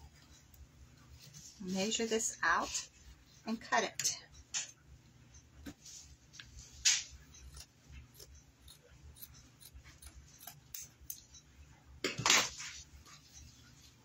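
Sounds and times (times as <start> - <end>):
scissors snipping fabric: 6.9 - 11.2.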